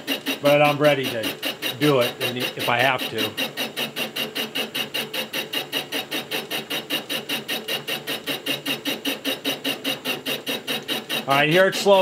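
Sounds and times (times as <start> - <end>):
boring bar rhythmic cutting: 0.0 - 12.0.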